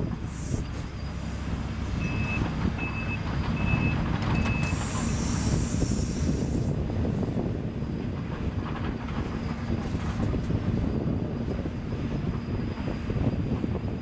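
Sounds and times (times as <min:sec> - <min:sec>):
excavator diesel engine running: 0:00.0 - 0:14.0
warning alarm beeps: 0:02.0 - 0:04.8
hydraulic hiss: 0:04.6 - 0:06.8.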